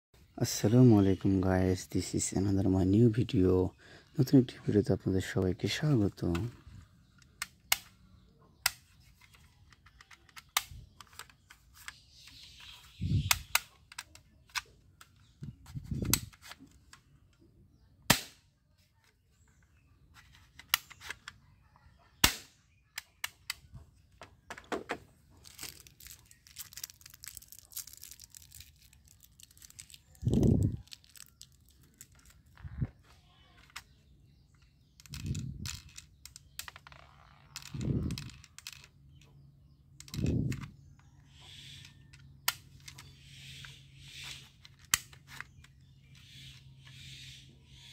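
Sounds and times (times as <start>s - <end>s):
plastic parts clicking: 5.3s - 17.5s, 19.0s - 21.4s, 22.2s - 41.1s, 41.8s - 43.1s, 44.2s - 46.6s
plastic toy gun snaps: 18.1s - 18.5s, 22.2s - 23.6s.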